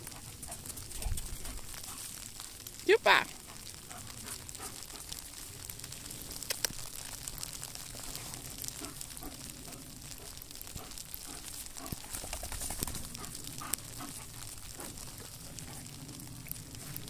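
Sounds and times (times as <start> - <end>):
rustling and crackling on frosty grass: 0.0 - 17.0
small clicks: 6.3 - 7.1.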